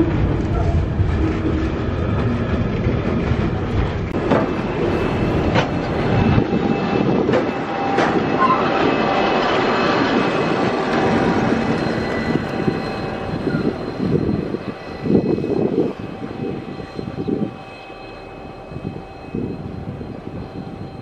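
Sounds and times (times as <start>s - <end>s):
diesel locomotive engine drone: 0.0s - 21.0s
train rumbles: 0.0s - 21.0s.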